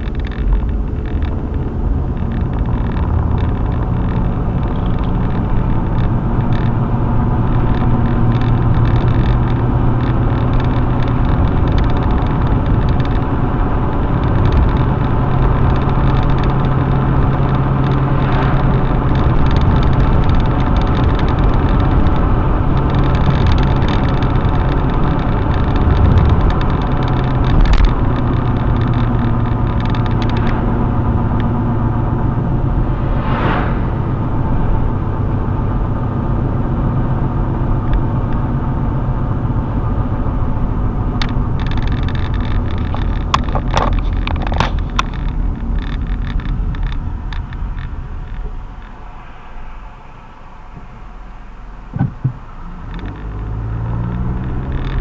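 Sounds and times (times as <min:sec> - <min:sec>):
car engine hum: 0:00.0 - 0:55.0
tyre and road noise: 0:00.0 - 0:55.0
car bumps: 0:51.9 - 0:52.4.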